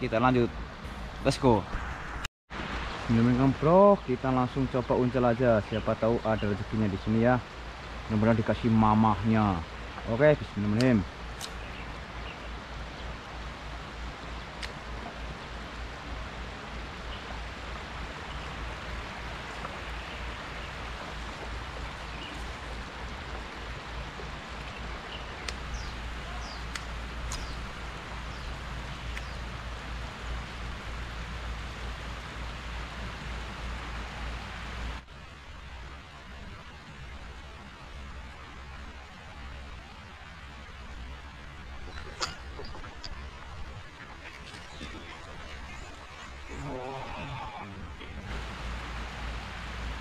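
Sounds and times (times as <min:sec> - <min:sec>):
stream water flowing: 0:00.0 - 0:50.0
faint sharp clicks: 0:10.8 - 0:11.7, 0:14.6 - 0:14.8, 0:25.4 - 0:25.7, 0:26.5 - 0:27.6, 0:29.1 - 0:29.4.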